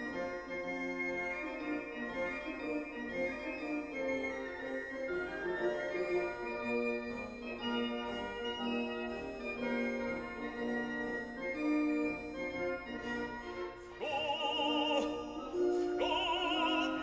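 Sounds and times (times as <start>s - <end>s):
person singing with vibrato: 14.0s - 17.0s.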